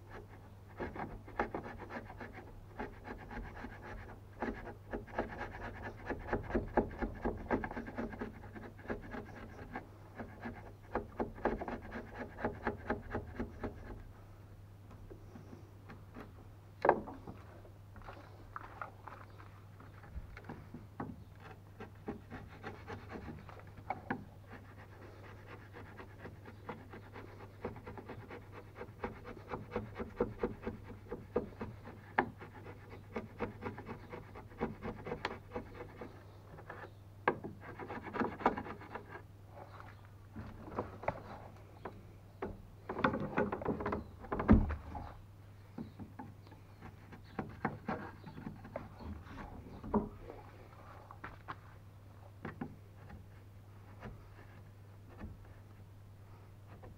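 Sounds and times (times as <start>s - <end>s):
wood chisel scraping: 0.1s - 14.1s, 18.0s - 40.0s, 45.8s - 50.4s.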